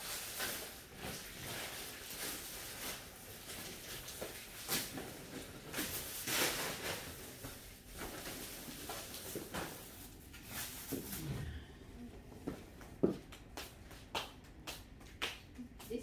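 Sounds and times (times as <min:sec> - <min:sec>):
bags rustling: 0:00.0 - 0:11.7.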